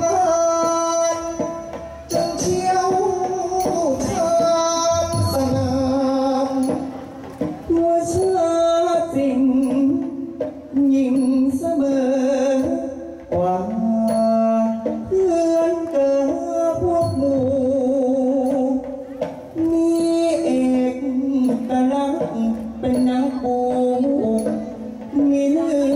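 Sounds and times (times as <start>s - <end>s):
people singing into microphones: 0.0s - 25.9s.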